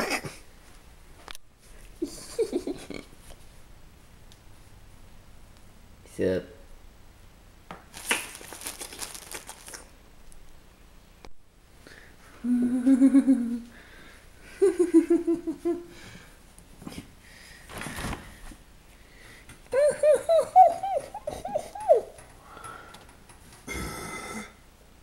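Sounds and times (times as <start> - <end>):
plastic bag crinkling: 7.9 - 9.9
person humming: 12.4 - 13.7, 19.7 - 22.1.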